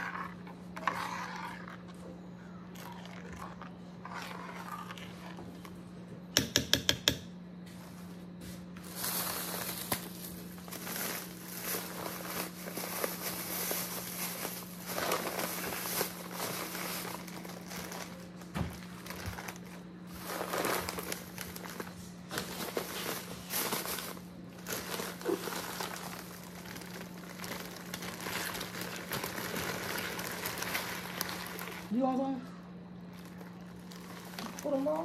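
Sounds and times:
steady low hum: 0.0s - 35.0s
plastic bags crinkling: 8.8s - 32.4s, 33.0s - 35.0s.

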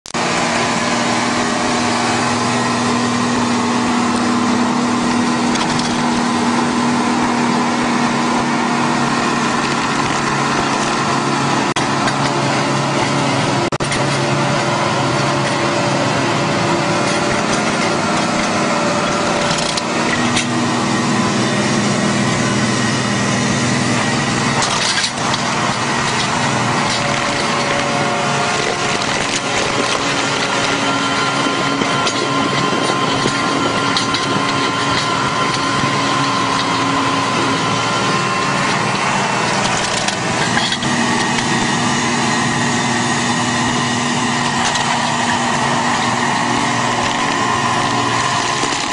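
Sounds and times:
stump cutter grinding wood: 0.0s - 48.9s
tractor diesel engine running: 0.0s - 48.9s
wood cracking: 1.2s - 21.7s, 23.3s - 48.9s.

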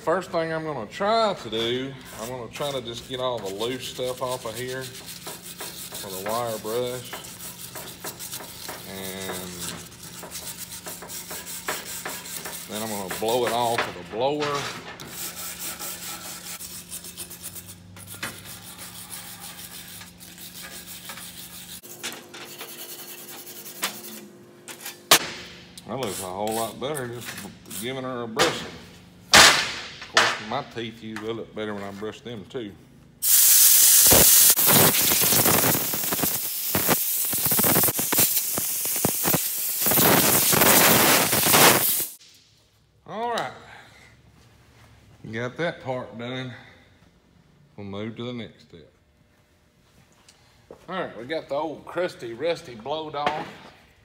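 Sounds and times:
wire brush scrubbing metal: 1.4s - 25.0s, 25.9s - 28.0s, 33.2s - 42.2s
compressed air blow gun hissing: 33.2s - 42.2s.

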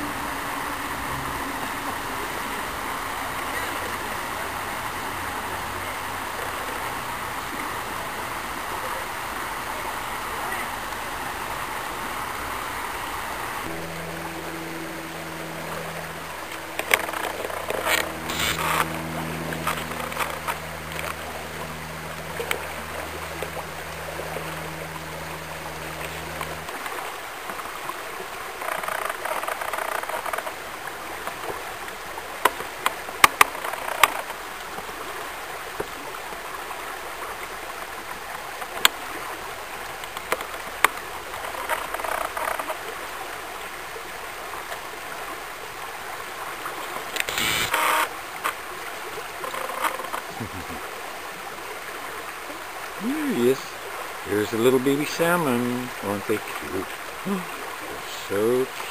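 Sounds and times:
low steady hum: 0.0s - 28.6s, 46.6s - 49.5s, 50.2s - 58.9s
creek water over stones: 0.0s - 58.9s
sharp clicks: 47.2s - 48.1s.

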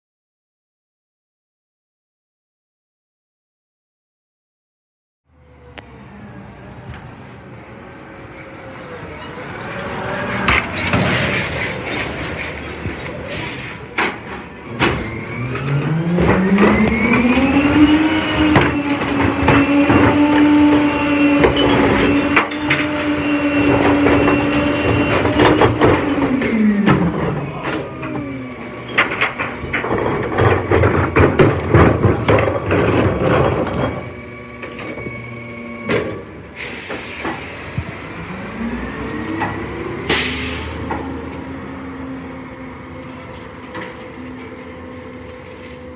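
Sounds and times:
garbage truck engine revving: 9.0s - 45.2s
bin clattering and banging: 28.9s - 34.0s.

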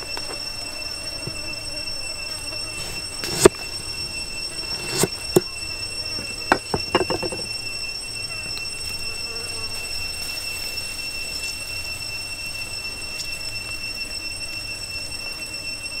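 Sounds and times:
high-pitched drone: 0.0s - 9.1s
knife cutting on chopping block: 2.8s - 3.7s, 4.7s - 5.5s.

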